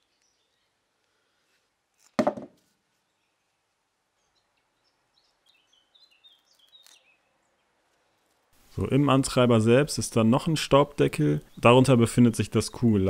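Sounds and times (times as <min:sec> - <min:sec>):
faint bird chirps: 0:00.0 - 0:01.0, 0:03.0 - 0:08.3.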